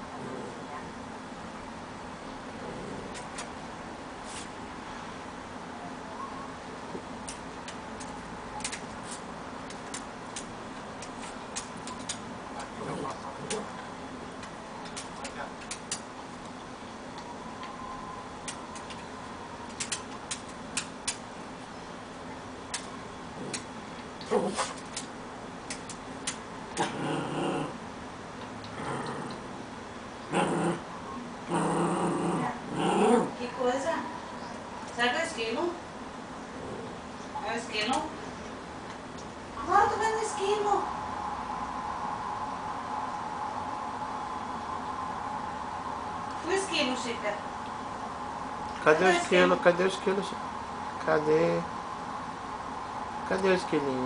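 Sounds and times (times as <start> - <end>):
dog growling: 0.0 - 0.8, 2.5 - 3.5, 12.6 - 13.8, 23.3 - 24.8, 26.7 - 27.8, 28.6 - 29.6, 30.3 - 33.4, 36.5 - 37.2
sharp clicks: 7.2 - 9.0, 9.6 - 12.2, 14.4 - 16.6, 19.7 - 21.2, 24.8 - 26.4.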